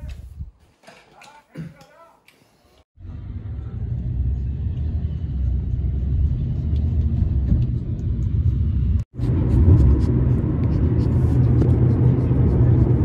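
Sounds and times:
car rumble inside cabin: 3.1 - 13.0.

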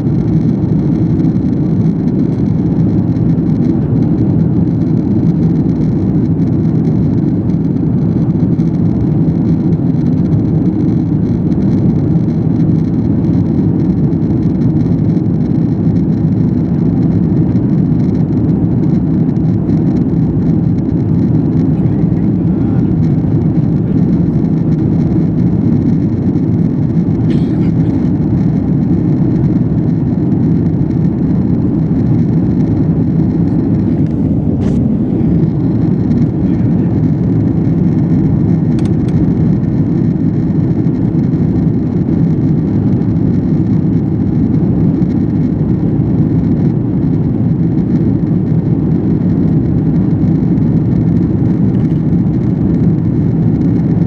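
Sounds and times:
jet engines and cabin air roar: 0.0 - 54.0
faint clicks: 38.8 - 39.2.

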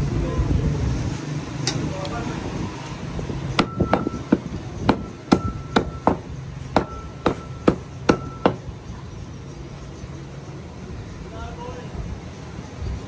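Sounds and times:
cleaver chopping meat on wood: 3.6 - 8.6.

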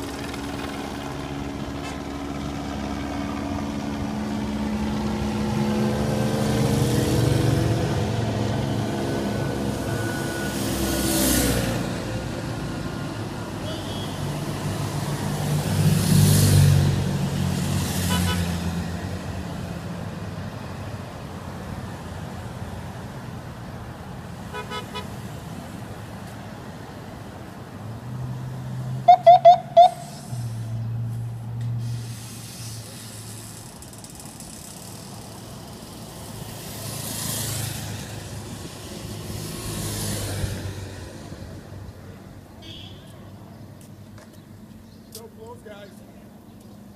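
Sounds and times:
cars and motorcycles passing: 0.0 - 46.9
car horn toots: 24.5 - 25.1, 42.6 - 43.2.

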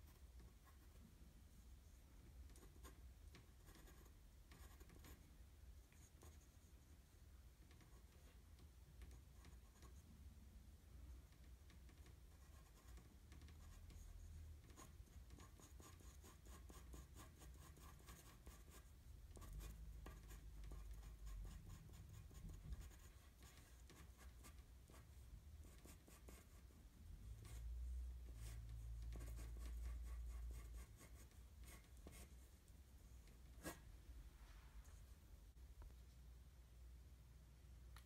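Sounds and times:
pencil scratching on paper: 2.4 - 5.2, 11.9 - 27.6, 28.3 - 32.6, 33.2 - 33.9.

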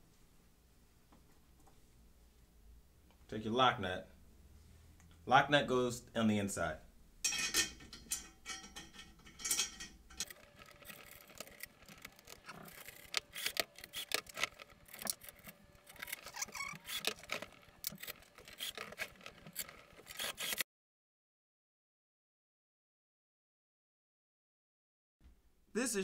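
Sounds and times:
light metal clicks and clinks: 7.3 - 10.3.

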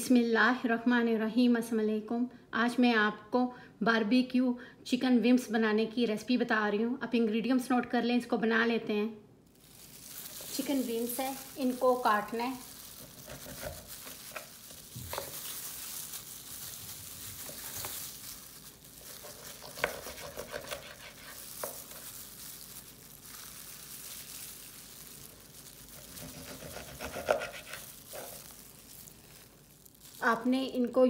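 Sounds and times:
plastic gloves crinkling: 9.4 - 31.0
knife cutting chicken: 19.2 - 22.0, 26.0 - 28.3.

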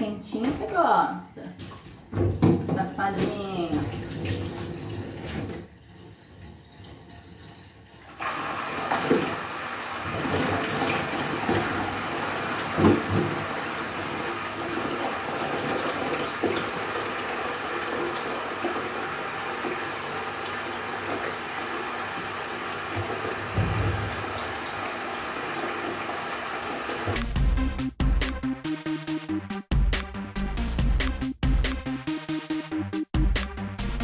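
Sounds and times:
hose water splashing into tub: 2.7 - 27.8.

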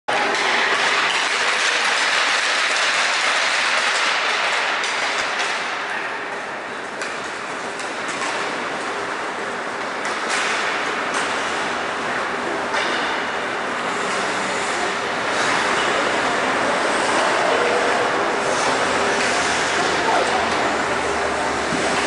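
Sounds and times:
hockey sticks clicking: 0.2 - 5.9, 7.0 - 9.1.

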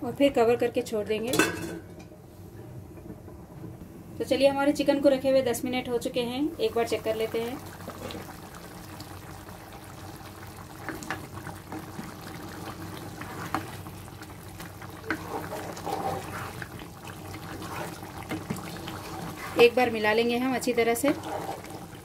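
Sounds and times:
gravy boiling with pops: 6.6 - 22.0.

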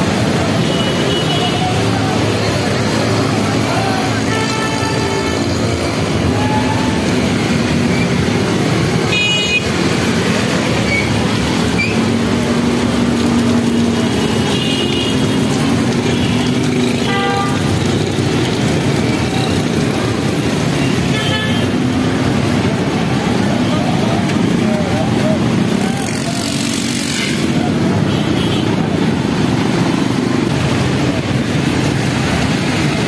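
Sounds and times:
motorcycle engines running: 0.0 - 33.0
horns honking: 3.9 - 7.9.

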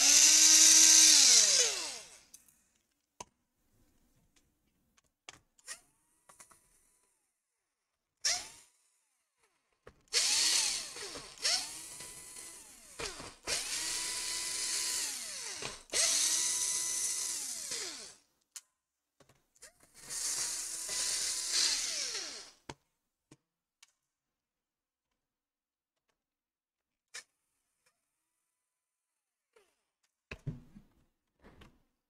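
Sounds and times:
electric screwdriver whine: 0.0 - 2.2, 10.1 - 18.2, 20.0 - 22.6.

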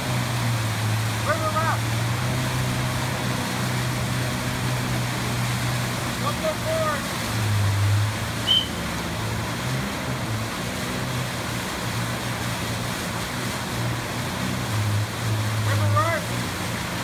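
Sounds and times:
rushing churning water: 0.0 - 17.0
watercraft engine revving: 0.0 - 17.0
short high chirp: 8.4 - 8.8.

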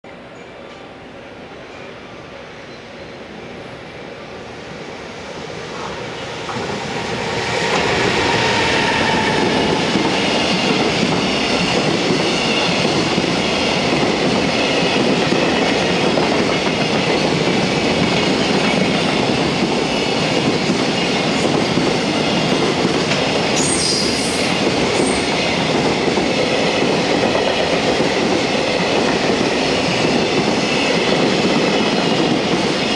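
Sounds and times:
freight train rumbling past: 0.1 - 32.9
high squeal: 6.1 - 10.7.

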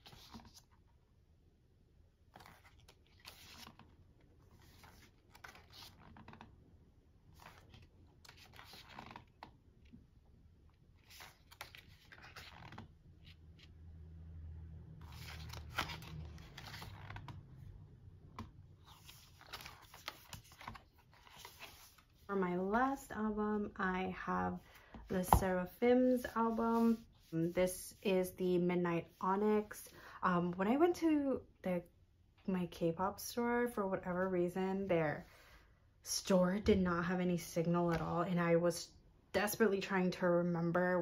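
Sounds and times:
pages turning: 0.0 - 0.8, 2.3 - 6.6, 7.2 - 9.6, 11.0 - 13.7, 15.0 - 17.4, 18.3 - 22.3.

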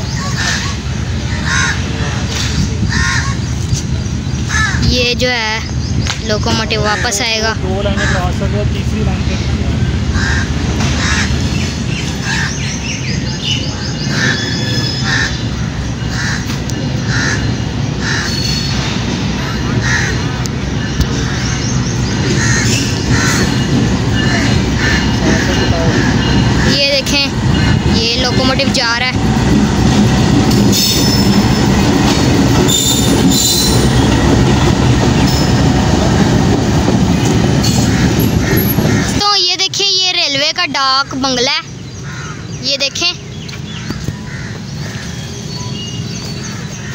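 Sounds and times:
diesel locomotive engine rumbling: 0.0 - 46.9
train wheels rolling on rails: 0.0 - 46.9
crows cawing: 1.3 - 2.0, 2.9 - 3.5, 4.5 - 4.9, 6.8 - 8.5, 10.0 - 12.6, 14.2 - 18.5, 19.6 - 20.4, 21.2 - 28.0, 37.7 - 39.2, 42.0 - 42.6, 43.7 - 45.2
high wheel squeal: 30.5 - 34.3.

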